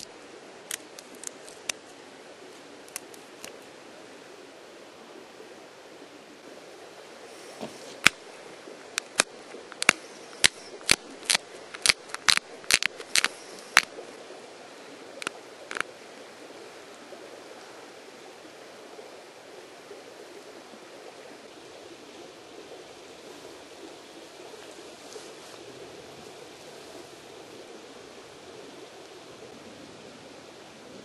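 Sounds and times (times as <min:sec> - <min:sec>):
steady hiss: 0:00.0 - 0:04.4, 0:06.4 - 0:20.4
stone flakes snapping clicks: 0:00.7 - 0:01.8, 0:08.0 - 0:08.2, 0:09.0 - 0:13.9.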